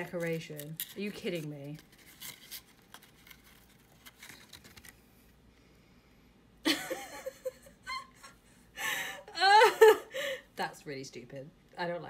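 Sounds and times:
paper card rustling: 0.0s - 5.4s
woman laughing: 6.6s - 10.4s.

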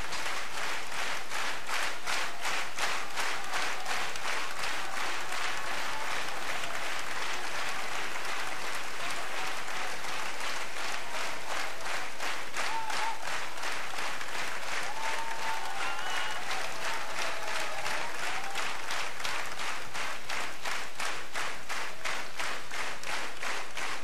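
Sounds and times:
audience applauding: 0.0s - 24.0s.

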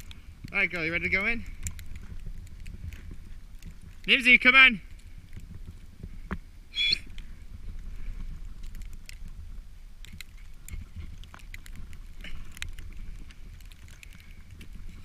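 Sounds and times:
wind rumble on microphone: 0.0s - 15.0s.

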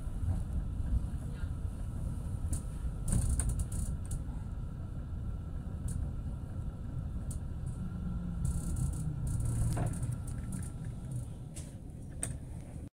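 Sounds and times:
low hum: 0.0s - 12.9s
tram rumbling: 0.0s - 12.9s.

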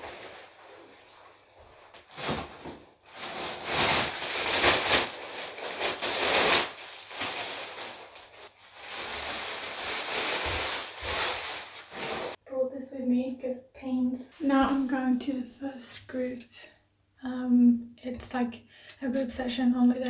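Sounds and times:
plastic bag rustling and crinkling: 0.0s - 12.4s.

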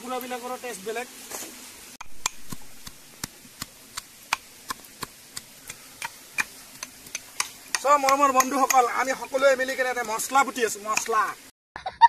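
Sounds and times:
sharp taps: 2.0s - 8.9s.

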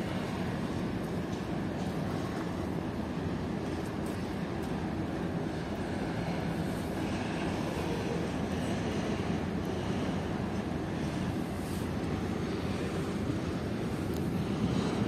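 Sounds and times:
diesel locomotive engine running: 0.0s - 15.0s.

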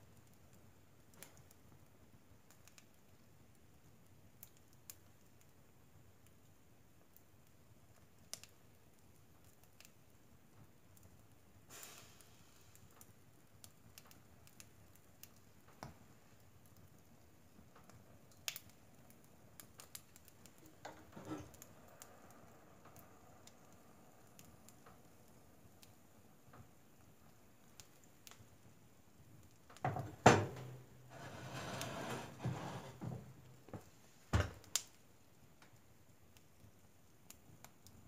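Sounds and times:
wood fire crackling: 0.0s - 38.0s
fire hissing: 11.5s - 35.1s.

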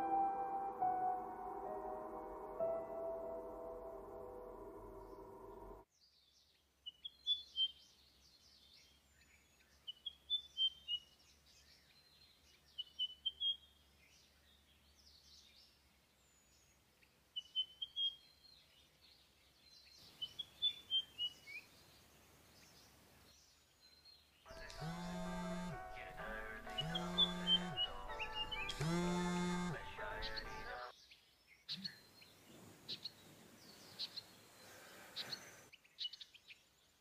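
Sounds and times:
music track: 0.0s - 5.8s, 24.5s - 30.9s
songbirds chirping: 4.1s - 37.0s.

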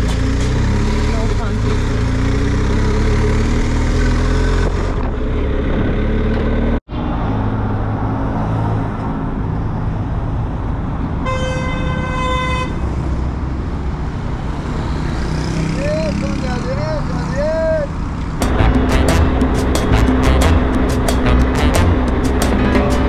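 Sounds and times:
traffic noise: 0.0s - 23.0s
vehicle horn honking: 11.2s - 12.8s, 18.5s - 23.0s.

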